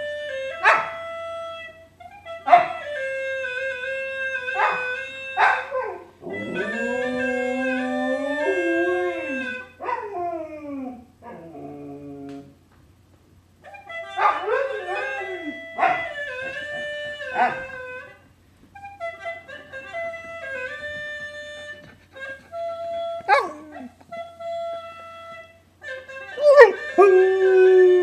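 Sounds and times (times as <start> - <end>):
gourd instrument held notes: 1.0 - 9.8, 13.6 - 28.0
dog howling: 4.6 - 12.6, 14.2 - 17.9, 22.1 - 24.1, 26.3 - 28.0.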